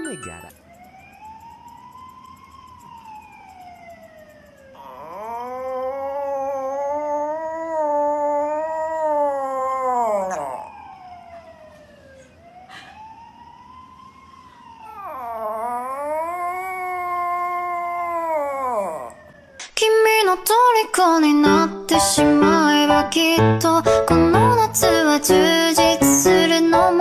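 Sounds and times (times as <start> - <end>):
dog howling: 4.8 - 11.1, 14.9 - 19.4.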